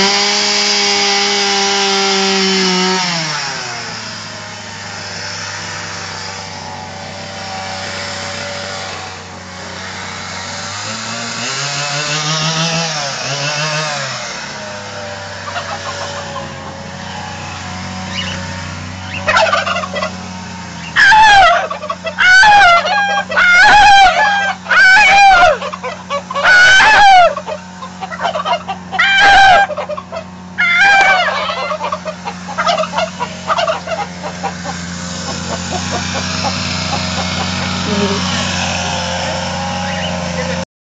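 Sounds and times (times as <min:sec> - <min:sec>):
turkey gobbling: 0:15.4 - 0:38.4, 0:39.7 - 0:40.6.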